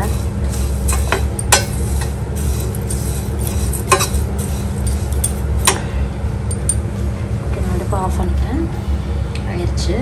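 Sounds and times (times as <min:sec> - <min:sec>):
spoon scraping pan: 0:00.0 - 0:05.8
low hum: 0:00.0 - 0:10.0.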